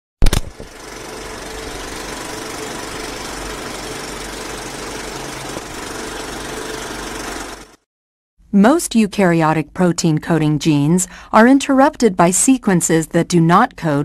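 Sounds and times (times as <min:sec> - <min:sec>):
mechanical whirring: 0:00.2 - 0:07.8.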